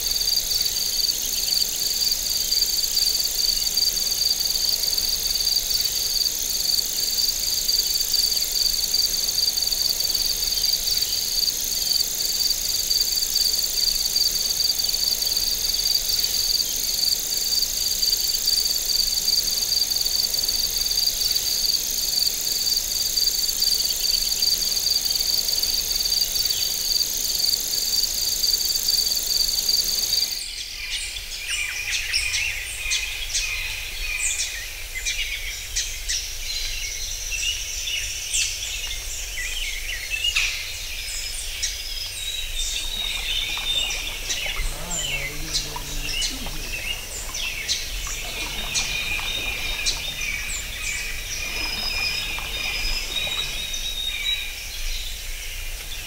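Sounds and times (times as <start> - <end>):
rapidly pulsing insect trill: 0.0 - 30.4, 42.2 - 54.7
high continuous insect trill: 0.0 - 30.6, 34.2 - 56.0.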